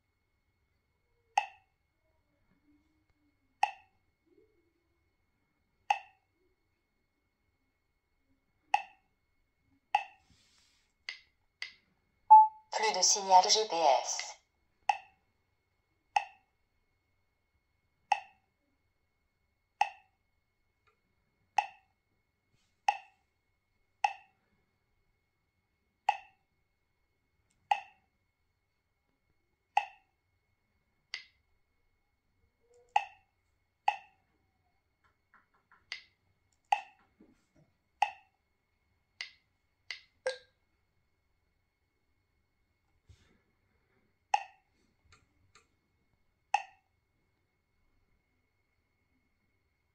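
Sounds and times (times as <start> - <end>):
touchscreen key-press blips: 12.3 - 12.6.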